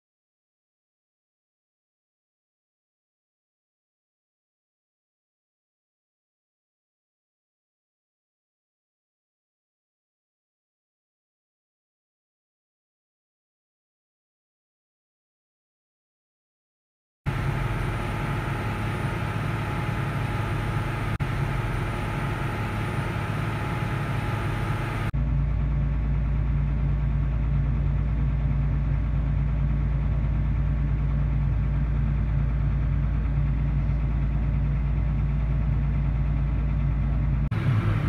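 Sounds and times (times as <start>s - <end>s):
machine drone in cab: 17.3s - 38.0s
tractor engine drone: 17.3s - 38.0s.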